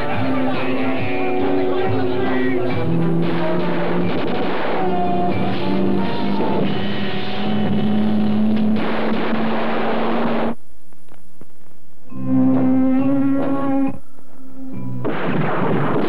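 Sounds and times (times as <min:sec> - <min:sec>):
trailer music: 0:01.9 - 0:10.5
car noise: 0:02.7 - 0:11.7.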